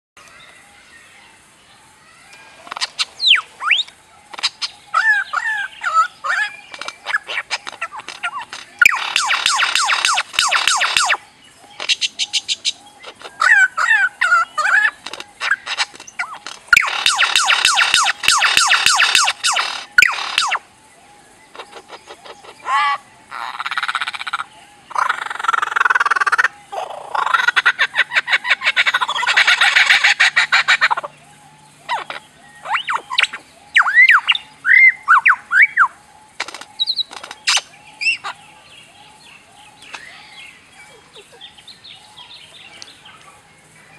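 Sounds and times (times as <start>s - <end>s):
bird clicks and warbles: 2.3s - 20.6s, 35.1s - 38.4s
bird mimicking laser sounds: 2.7s - 11.2s, 11.8s - 20.6s
fast buzzy rattling trills: 6.7s - 11.2s, 14.9s - 20.6s.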